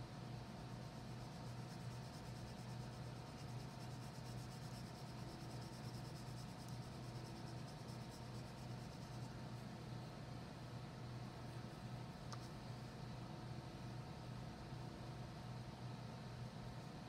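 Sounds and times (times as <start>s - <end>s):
low hum and hiss: 0.0s - 17.0s
crayon scratching on paper: 1.2s - 9.4s.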